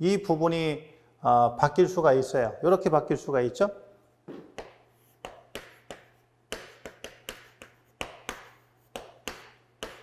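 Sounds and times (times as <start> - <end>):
chalk tapping on a chalkboard: 4.3 - 10.0.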